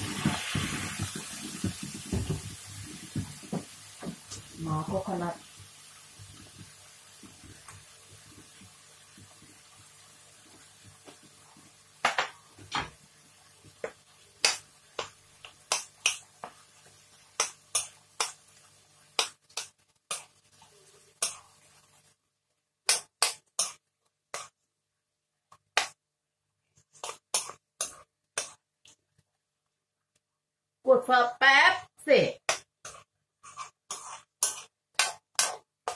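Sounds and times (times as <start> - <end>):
metal spoon scraping wok: 32.8 - 35.9.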